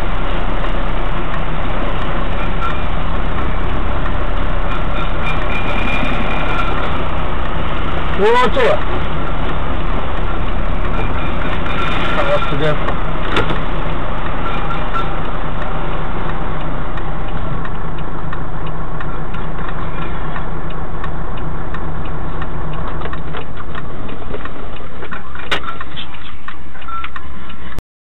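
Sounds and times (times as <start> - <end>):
truck diesel engine idling: 0.0 - 27.7
light clicks and ticks: 8.4 - 27.8.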